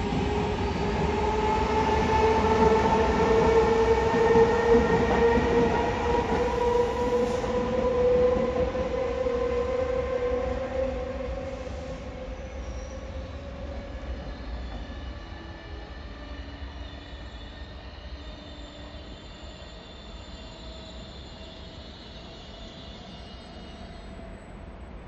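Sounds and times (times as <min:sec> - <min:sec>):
train rumbling: 0:00.0 - 0:16.6.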